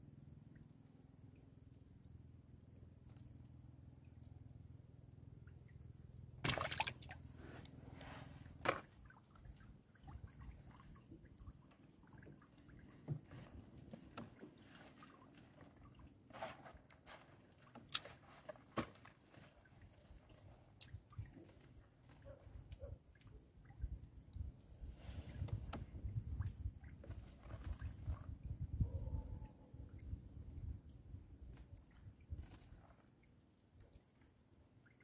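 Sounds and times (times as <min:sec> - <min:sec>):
water dripping and splashing: 0:06.4 - 0:07.2.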